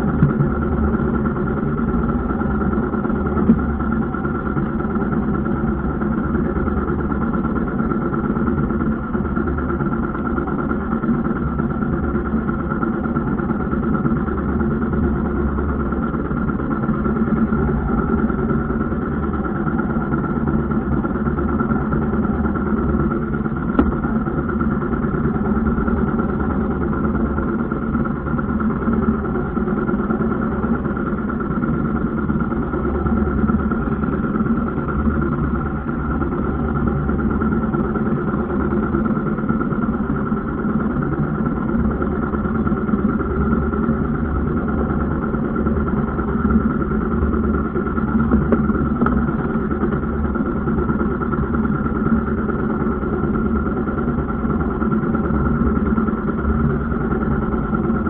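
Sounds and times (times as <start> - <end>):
boat engine running steadily: 0.0 - 58.0.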